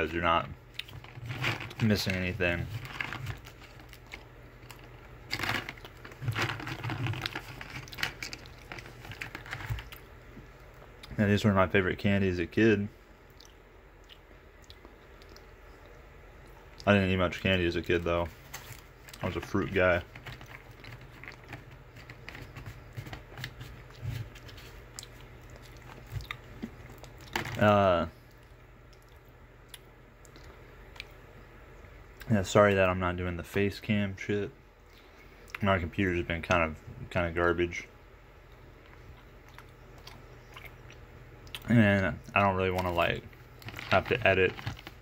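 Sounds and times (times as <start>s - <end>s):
cardboard box rustling and crinkling: 1.0s - 4.0s, 4.7s - 9.9s, 43.6s - 45.0s.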